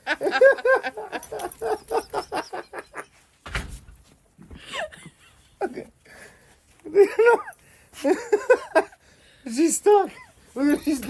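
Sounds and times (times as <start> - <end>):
huskies yipping and barking: 0.4 - 3.1.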